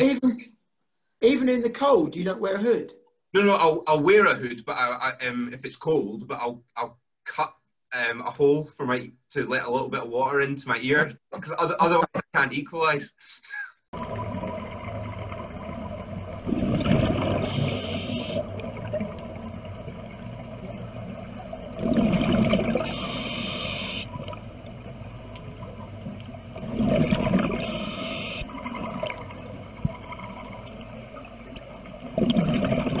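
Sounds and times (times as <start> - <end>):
regulator breathing bubbles: 16.4 - 19.0, 21.7 - 24.4, 26.6 - 30.4
regulator hiss: 17.3 - 18.6, 22.8 - 24.3, 27.5 - 28.5.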